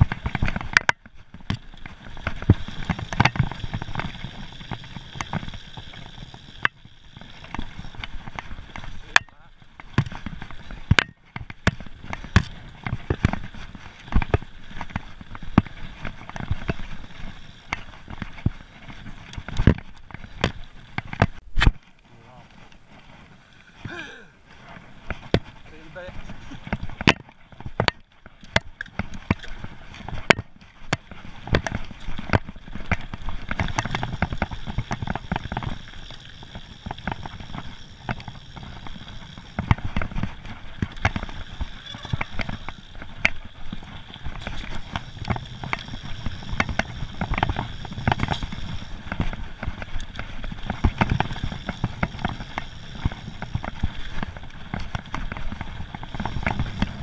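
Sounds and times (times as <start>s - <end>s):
bike rattling and knocking: 0.0s - 57.0s
tyres crunching over gravel: 0.0s - 57.0s.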